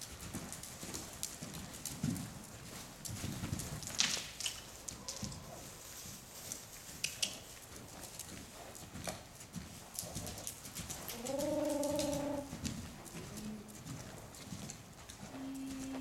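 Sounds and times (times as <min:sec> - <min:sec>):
horse calling: 0:11.1 - 0:12.5, 0:15.4 - 0:16.0.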